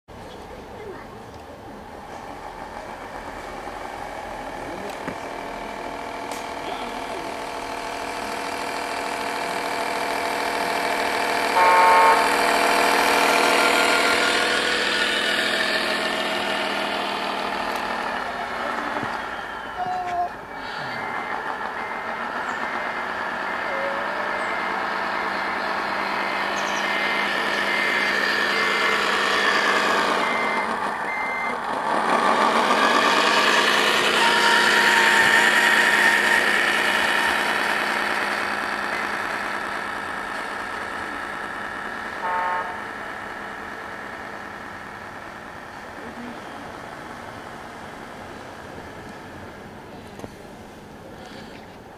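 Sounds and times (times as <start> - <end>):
simulated diesel engine: 0.1 - 51.9
reversing beeper: 4.3 - 45.2
short horn toot: 11.6 - 12.4.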